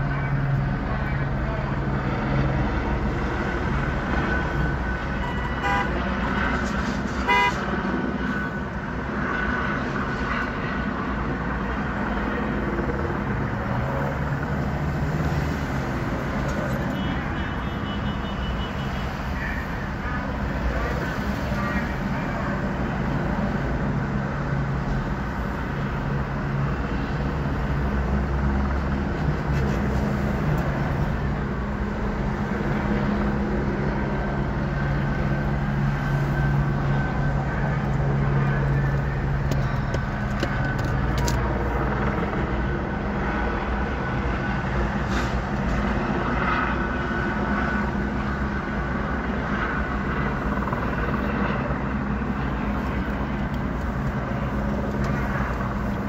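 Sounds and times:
idling vehicle engines hum: 0.0 - 56.0.

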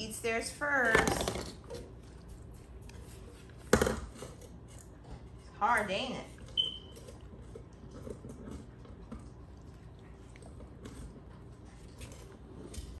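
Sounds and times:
teeth scraping on chew treat: 6.4 - 13.0.

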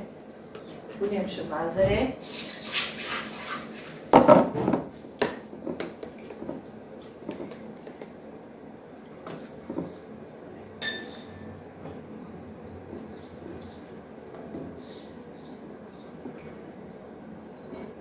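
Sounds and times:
cookware and utensils clattering: 1.8 - 6.6, 10.8 - 12.0
ringing metal clink: 10.8 - 11.4.

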